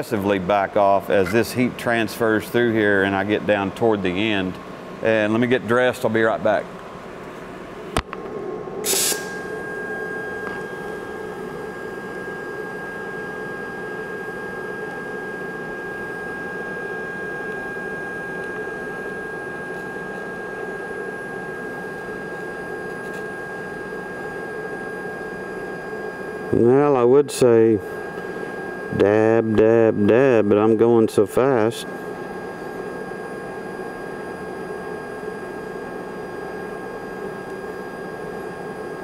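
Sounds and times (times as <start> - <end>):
welding arc crackle: 8.8 - 9.6
welding arc hissing and whistling: 8.8 - 32.2.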